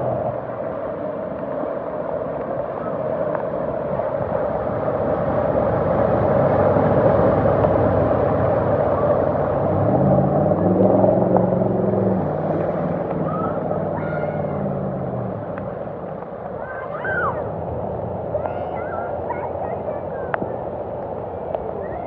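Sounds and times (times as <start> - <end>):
water rushing from truck: 0.0 - 22.0
truck engine: 4.6 - 16.6.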